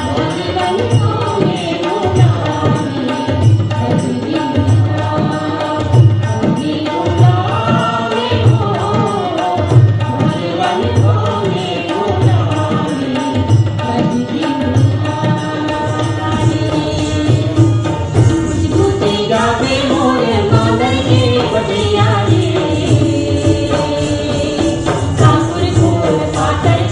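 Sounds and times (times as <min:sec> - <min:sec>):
sustained harmonium: 0:00.0 - 0:26.9
tabla bass strokes: 0:00.0 - 0:26.9
woman singing: 0:00.0 - 0:26.9.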